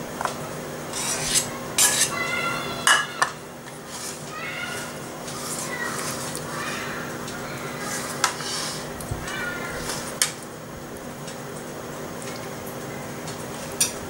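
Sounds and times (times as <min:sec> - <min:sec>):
spoon scraping in metal pan: 0:00.9 - 0:02.2, 0:07.9 - 0:08.9.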